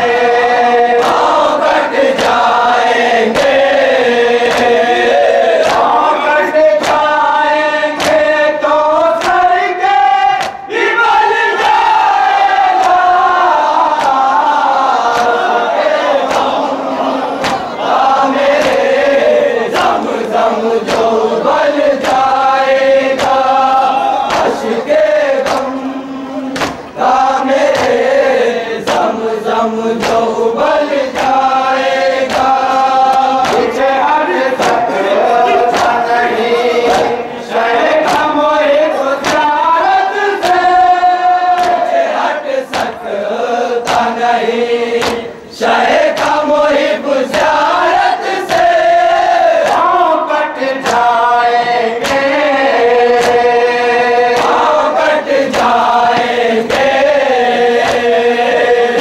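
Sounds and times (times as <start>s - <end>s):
men chanting in unison: 0.0s - 59.0s
hands slapping chests: 1.0s - 2.6s, 3.3s - 8.4s, 9.0s - 9.6s, 10.4s - 10.7s, 11.6s - 15.4s, 16.2s - 16.8s, 17.4s - 19.0s, 20.8s - 21.2s, 21.9s - 24.7s, 25.3s - 25.9s, 26.5s - 28.2s, 28.8s - 29.2s, 30.0s - 30.4s, 31.0s - 37.3s, 37.9s - 38.4s, 39.1s - 39.6s, 40.4s - 40.8s, 41.5s - 43.1s, 43.8s - 44.2s, 44.9s - 45.3s, 46.1s - 46.4s, 49.6s - 49.9s, 50.7s - 57.0s, 57.8s - 58.2s.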